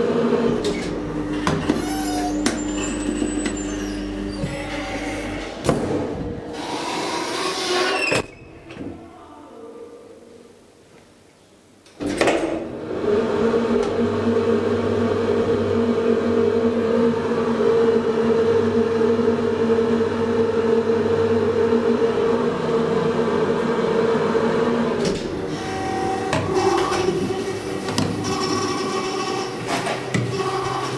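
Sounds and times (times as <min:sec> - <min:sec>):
hydraulic pump hum and whine: 0:00.0 - 0:08.8, 0:12.7 - 0:30.9
elevator doors sliding open rattling: 0:00.2 - 0:08.9, 0:12.0 - 0:15.6, 0:23.6 - 0:30.9.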